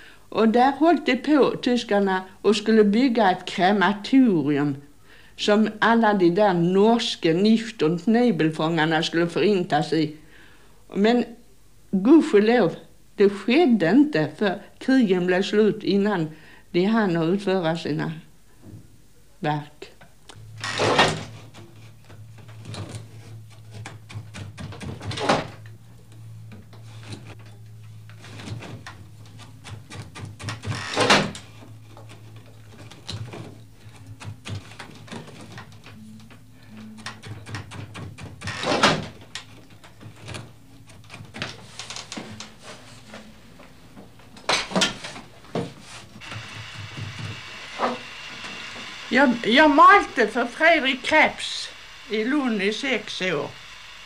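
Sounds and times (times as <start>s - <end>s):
steady low hum: 20.0s - 54.0s
wooden loom knocks and clatter: 20.8s - 25.6s.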